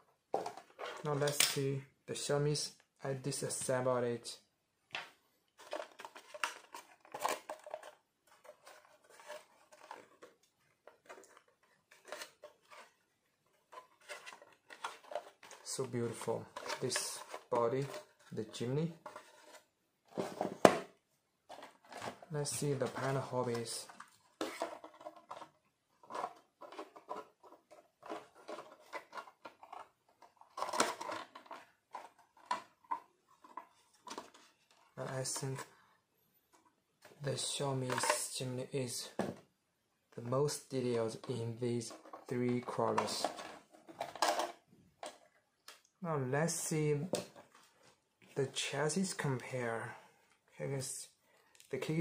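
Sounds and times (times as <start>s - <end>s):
plastic clatter: 0.3s - 1.6s, 5.0s - 20.9s, 21.5s - 35.6s, 41.1s - 45.9s
plastic toy car handled: 0.3s - 1.6s, 5.0s - 35.7s, 36.5s - 38.4s, 41.0s - 45.8s
plastic shell clicks and scrapes: 5.6s - 13.0s, 21.5s - 35.6s.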